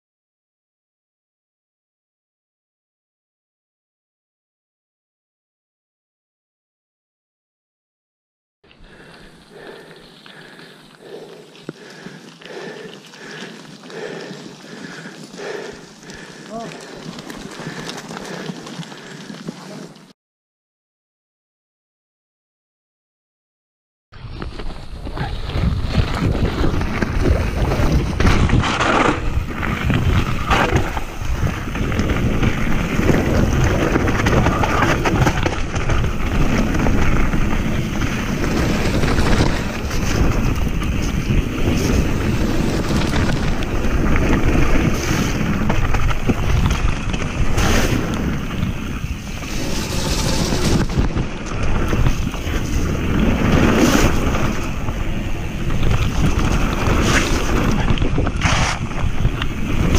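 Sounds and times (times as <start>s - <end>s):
bike tyres rumbling on gravel: 8.8s - 20.1s, 24.2s - 59.9s
bike rattling: 8.9s - 20.1s, 24.2s - 59.9s
wind buffeting microphone: 24.4s - 59.9s.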